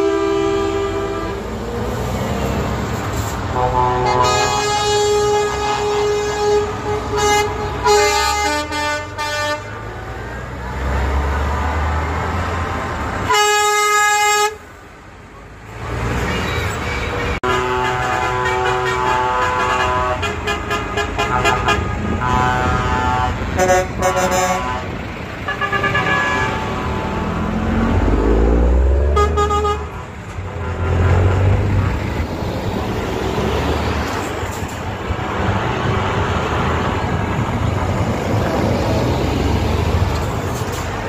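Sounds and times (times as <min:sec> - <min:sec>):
truck air horns: 0:00.0 - 0:01.6, 0:02.4 - 0:10.0, 0:13.2 - 0:14.7, 0:16.2 - 0:27.6, 0:29.0 - 0:31.9
diesel truck engines rumbling: 0:00.0 - 0:41.0.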